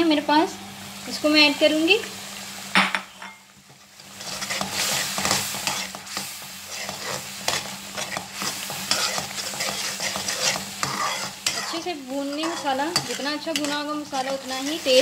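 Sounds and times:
sizzling in oil: 0.0s - 15.0s
metal spoon scraping a pan: 4.0s - 15.0s.

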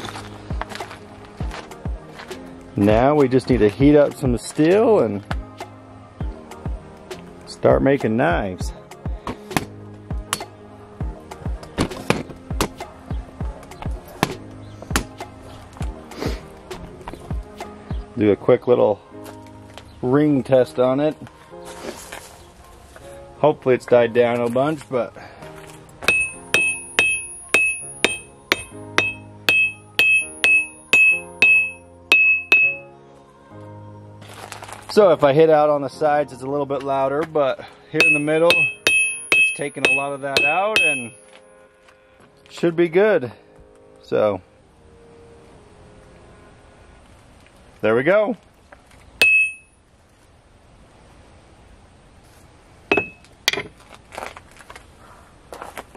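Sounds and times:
hammer ringing on anvil: 26.1s - 32.8s, 38.0s - 41.3s, 49.2s - 49.7s, 52.9s - 53.6s.

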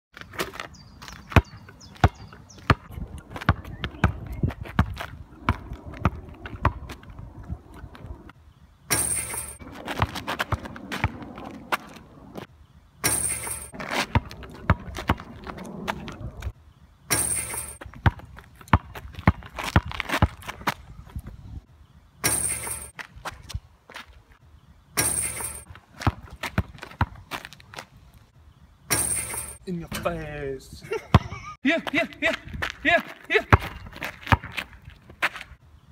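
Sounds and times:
basketball bouncing on asphalt: 0.2s - 8.3s, 8.9s - 16.5s, 17.1s - 21.5s, 22.2s - 24.2s, 25.0s - 28.0s, 28.9s - 29.6s, 31.1s - 31.4s, 33.5s - 35.6s
voices: 29.6s - 33.6s.

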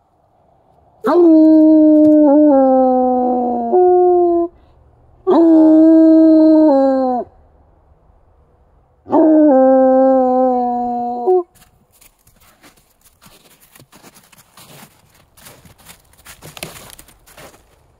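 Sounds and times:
dog baying howls: 1.0s - 4.5s, 5.3s - 7.3s, 9.1s - 11.6s.

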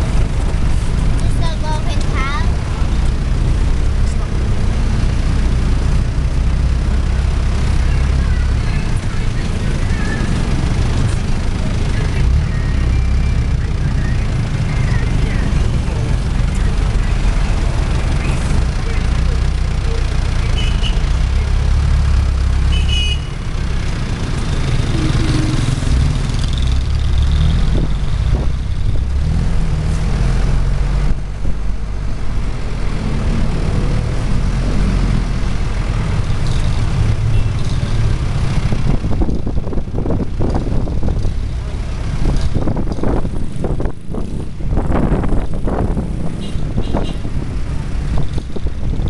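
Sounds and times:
road noise: 0.0s - 49.0s
vehicle engine running: 0.0s - 49.0s
wind buffeting microphone: 38.1s - 49.0s.

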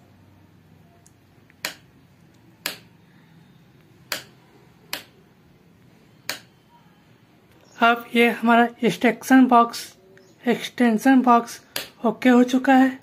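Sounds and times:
sharp clicks: 1.0s - 2.9s, 3.8s - 5.2s, 6.2s - 6.6s, 11.7s - 12.0s.

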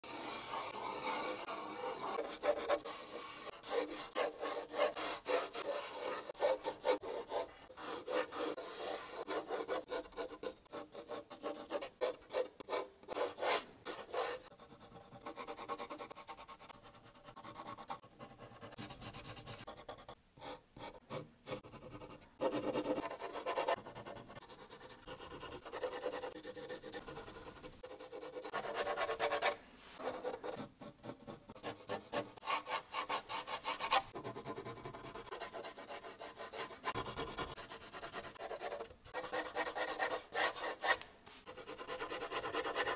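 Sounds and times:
pencil scratching on paper: 0.0s - 42.9s.

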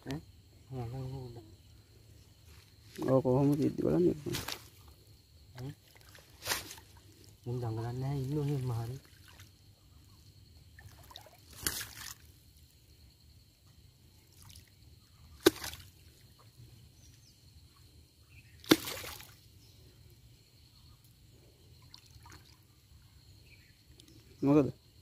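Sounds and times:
fish splashing in water: 10.8s - 12.3s, 15.4s - 16.2s, 18.6s - 19.4s.

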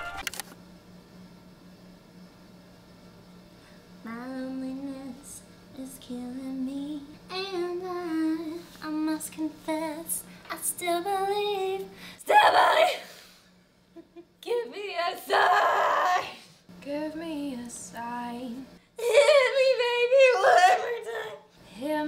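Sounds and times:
woman singing softly: 4.0s - 13.1s, 14.4s - 22.0s.

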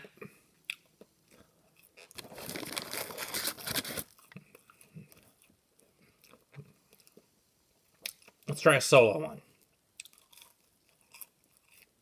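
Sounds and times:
paper wrapper crinkling: 2.0s - 4.2s
chewing: 9.6s - 11.9s.

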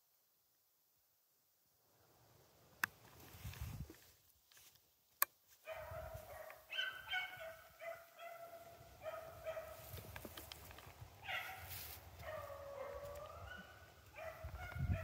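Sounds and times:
hunting dogs baying: 5.7s - 10.0s, 11.2s - 15.0s.

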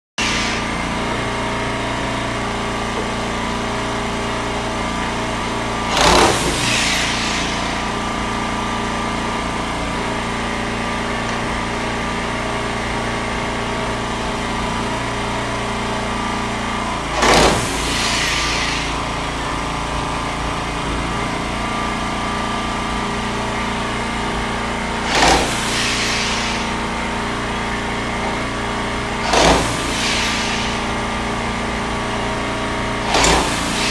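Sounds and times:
loud hissing bursts: 0.2s - 0.8s, 5.9s - 8.8s, 17.2s - 19.3s, 25.0s - 27.2s, 29.2s - 31.5s, 33.1s - 33.9s
machinery humming: 0.2s - 33.9s.

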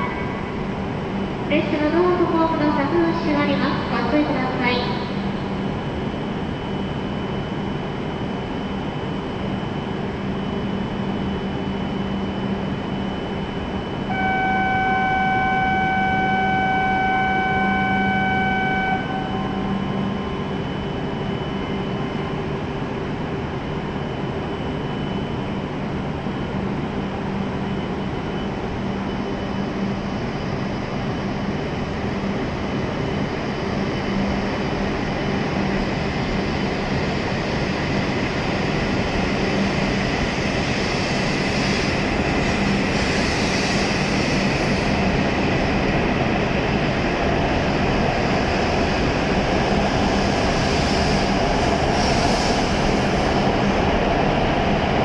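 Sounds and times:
train electric hum: 0.0s - 55.0s
rush of train wheels and air: 19.1s - 55.0s.

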